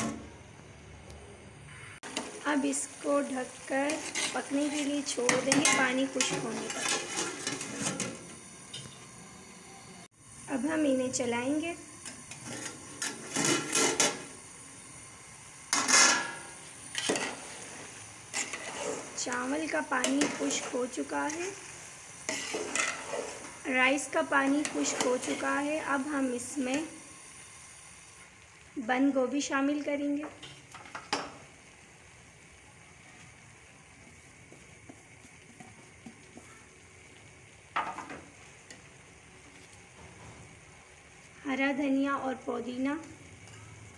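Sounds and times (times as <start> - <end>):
pot of rice sizzling: 0.0 - 43.9
metal spoon scraping pot: 3.9 - 9.0, 18.3 - 21.4, 22.3 - 23.6.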